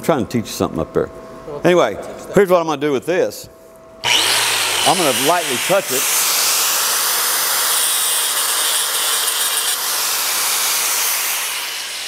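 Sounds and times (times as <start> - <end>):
angle grinder grinding metal: 4.0 - 12.0.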